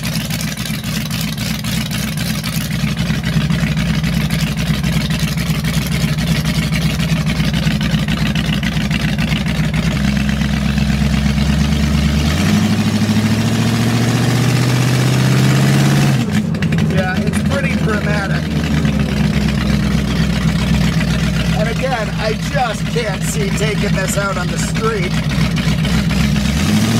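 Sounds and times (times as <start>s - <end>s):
car engine revving: 0.0s - 26.9s.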